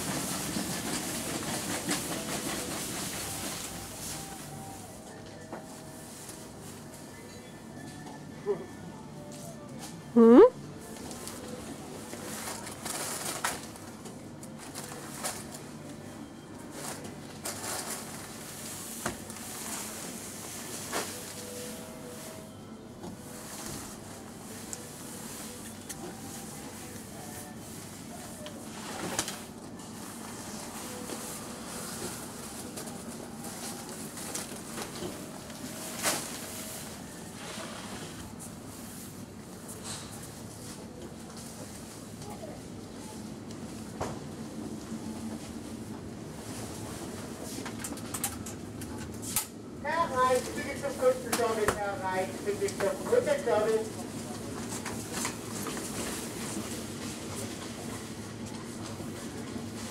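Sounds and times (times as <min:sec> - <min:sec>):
low machine hum: 0:00.0 - 0:59.9
rustling of plastic: 0:10.9 - 0:15.7, 0:16.7 - 0:21.8.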